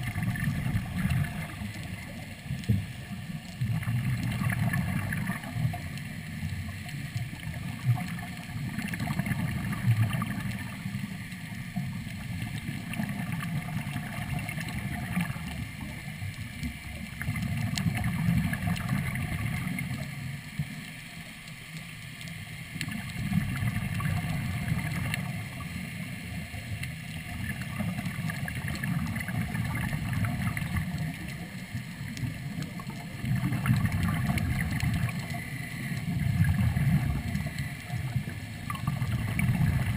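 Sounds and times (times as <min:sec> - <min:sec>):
diver exhaling bubbles underwater: 0:00.0 - 0:02.3, 0:03.6 - 0:05.9, 0:07.4 - 0:11.0, 0:12.4 - 0:15.8, 0:17.1 - 0:20.0, 0:22.8 - 0:25.7, 0:27.3 - 0:31.5, 0:32.2 - 0:39.9
faint clicks: 0:14.4 - 0:39.9.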